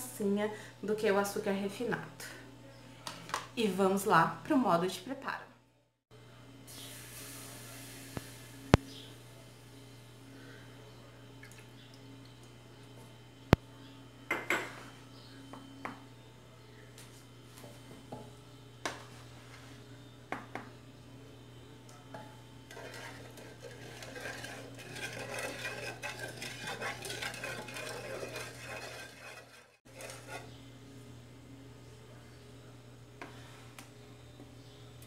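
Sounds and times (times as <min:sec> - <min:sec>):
spoon stirring and scraping pan: 0:22.2 - 0:30.6.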